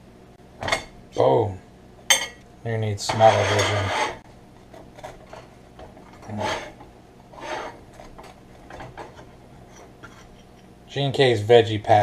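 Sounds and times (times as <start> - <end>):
fork scraping through pastry: 3.2 - 10.6.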